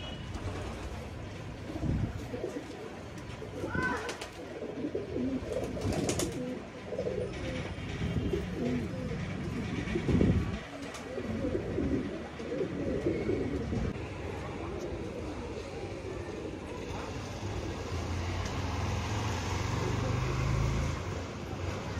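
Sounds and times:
pigeons cooing: 0:01.7 - 0:18.2.

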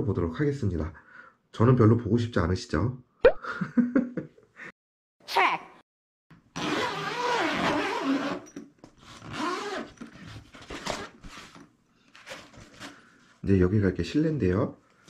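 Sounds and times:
zipper being pulled: 0:06.5 - 0:10.0.

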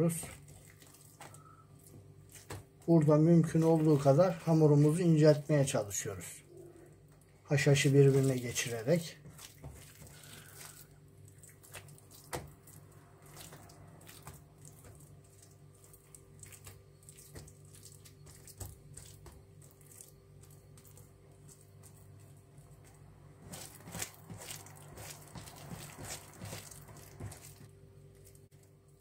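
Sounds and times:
hands patting oily dough: 0:00.0 - 0:05.4, 0:07.1 - 0:29.0
faint steady hum: 0:00.0 - 0:29.0.

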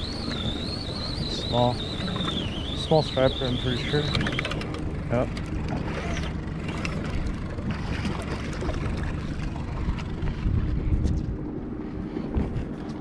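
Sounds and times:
boat motor running: 0:00.0 - 0:13.0
water against hull: 0:00.0 - 0:13.0
wind buffeting microphone: 0:08.6 - 0:13.0.

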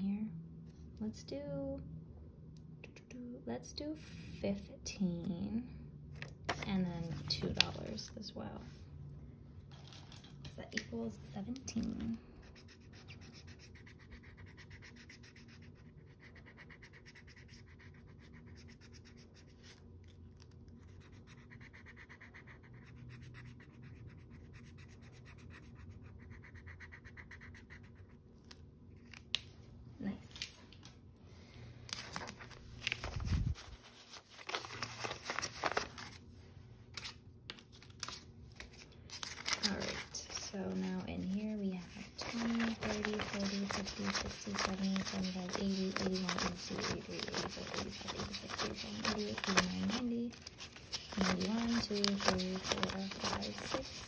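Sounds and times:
paper and banknotes rustling: 0:06.2 - 0:08.1, 0:31.9 - 0:36.3, 0:36.9 - 0:54.0
felt-tip marker scratching paper: 0:12.3 - 0:19.8, 0:20.8 - 0:28.2, 0:39.6 - 0:54.0.

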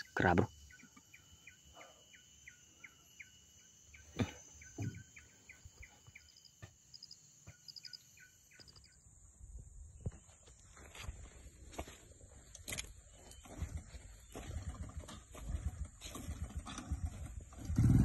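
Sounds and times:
short chirping call: 0:00.0 - 0:09.1
higher chirps: 0:00.0 - 0:09.2
high insect drone: 0:00.0 - 0:14.3.

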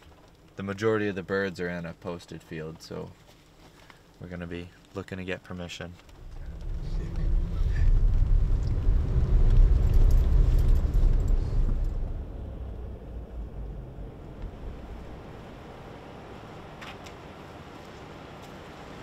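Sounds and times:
vehicle engine and road noise: 0:05.9 - 0:19.0.

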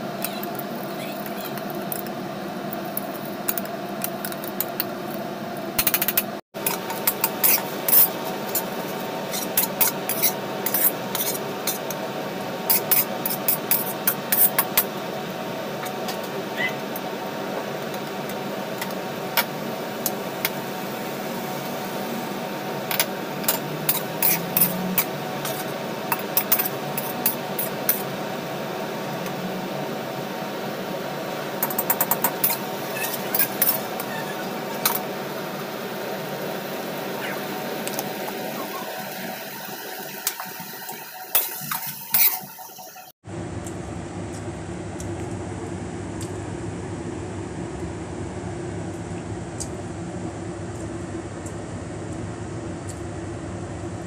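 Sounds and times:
metal spatula scraping a wok: 0:07.1 - 0:08.7, 0:09.3 - 0:11.8, 0:23.9 - 0:25.6.

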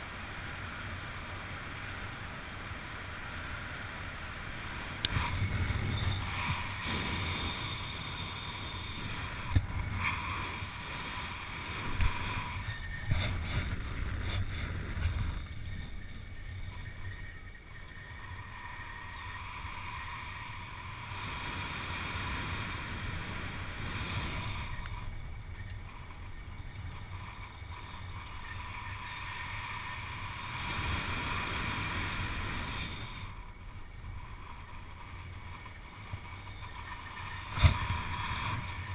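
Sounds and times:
wind buffeting microphone: 0:05.0 - 0:19.2.

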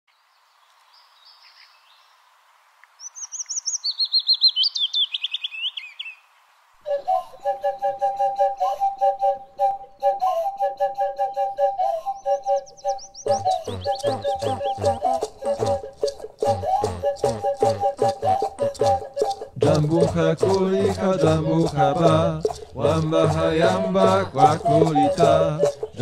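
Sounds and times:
fast pulsing two-note music: 0:11.2 - 0:26.0
high chirping trills: 0:12.1 - 0:26.0
clicking percussion: 0:13.3 - 0:26.0.

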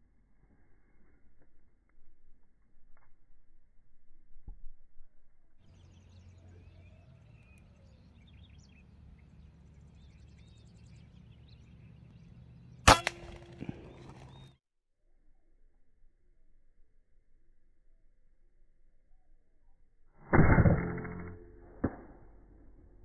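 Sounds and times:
birds chirping: 0:05.7 - 0:14.6
air rifle shot crack: 0:12.8 - 0:14.4.

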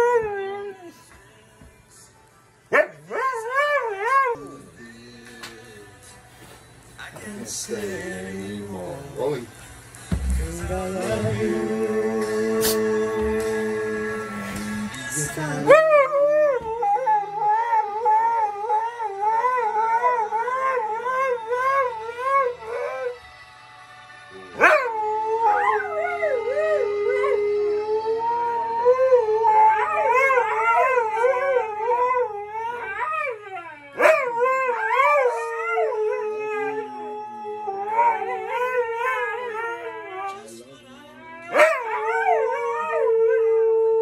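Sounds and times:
dogs howling: 0:00.0 - 0:01.0, 0:02.7 - 0:04.7, 0:12.6 - 0:23.3, 0:24.4 - 0:40.6, 0:41.2 - 0:44.0.

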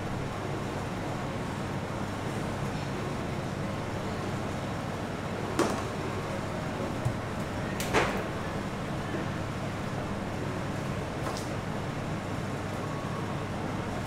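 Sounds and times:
kitchen background hum and hiss: 0:00.0 - 0:14.0.

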